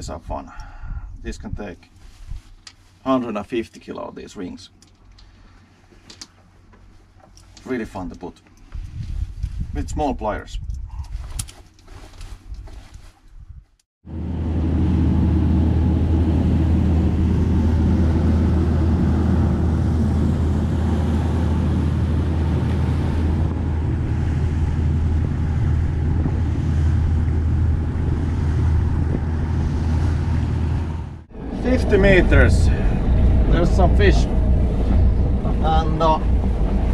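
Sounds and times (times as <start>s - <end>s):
motorboat engine drone: 14.0s - 36.9s
water rushing along hull: 14.1s - 36.9s.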